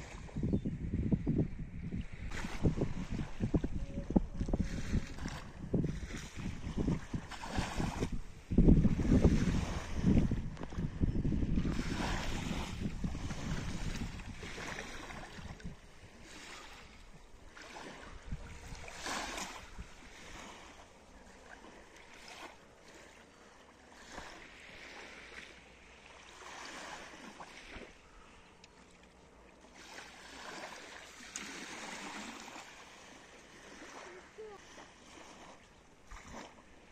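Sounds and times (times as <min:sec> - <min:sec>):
wind buffeting microphone: 0:00.0 - 0:20.7
small waves washing ashore: 0:01.7 - 0:36.9.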